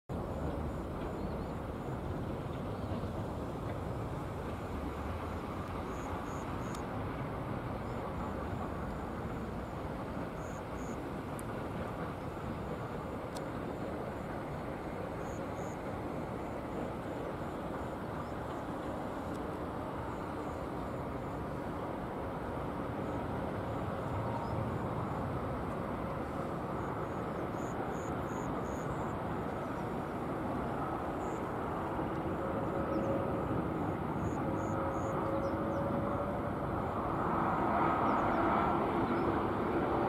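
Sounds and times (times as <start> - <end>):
faint clicks: 11.3 - 11.6, 13.3 - 13.5, 19.2 - 19.5.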